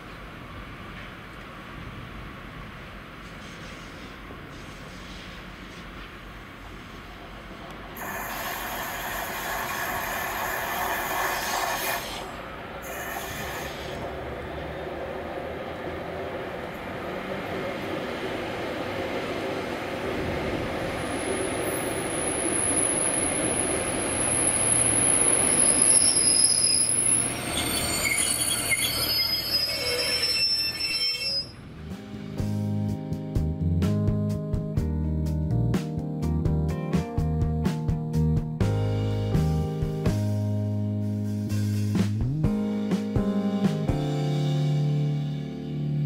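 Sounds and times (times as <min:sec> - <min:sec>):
train running past: 0:00.0 - 0:33.5
train wheels squealing: 0:08.0 - 0:14.0, 0:21.0 - 0:31.7.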